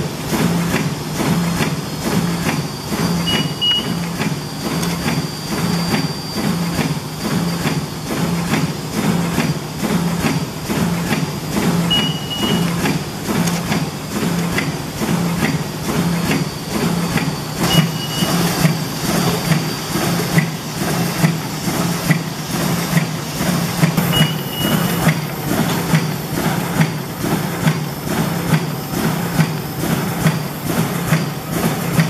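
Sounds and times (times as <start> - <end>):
machine motor hum: 0.3 - 32.0
short high beep: 3.2 - 4.0, 11.9 - 12.8, 17.6 - 18.5, 24.0 - 25.0
machine knocking: 7.6 - 32.0.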